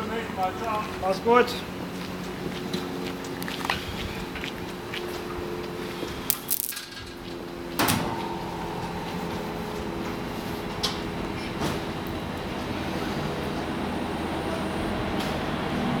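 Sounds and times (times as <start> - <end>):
electric locomotive humming: 0.0 - 16.0
buffers clanging: 6.5 - 15.4
steady higher tone: 7.0 - 16.0.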